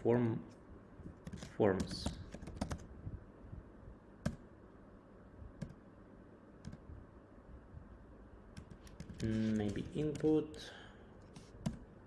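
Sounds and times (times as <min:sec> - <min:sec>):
computer keyboard key presses: 0:01.2 - 0:02.9, 0:06.6 - 0:06.8, 0:08.5 - 0:10.4.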